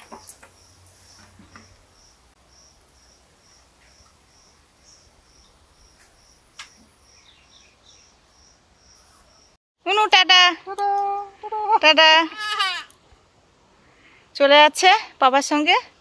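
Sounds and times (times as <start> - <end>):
faint insect chirping: 0.0 - 9.6.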